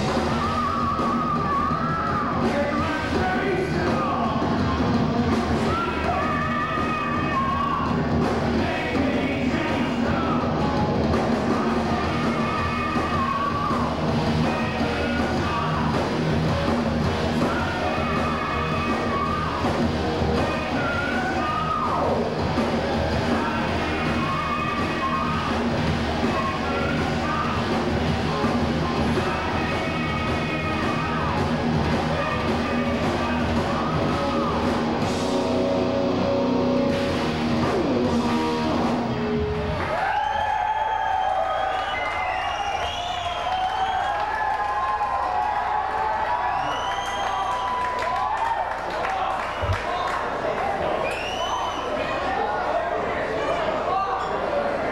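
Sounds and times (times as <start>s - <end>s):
distorted electric guitars: 0.0s - 40.1s
heavy metal band playing live: 0.0s - 40.1s
bass guitar: 0.0s - 41.3s
drums: 0.0s - 54.9s.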